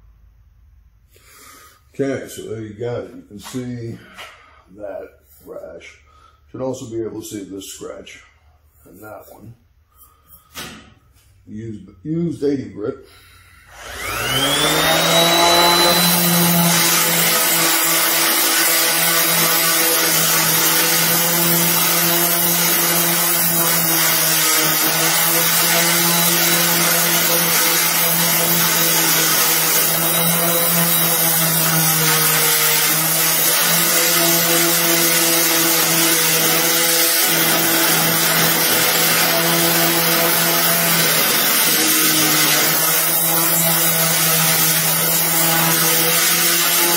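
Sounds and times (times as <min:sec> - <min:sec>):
orbital sander sanding steel: 0:13.8 - 0:46.9.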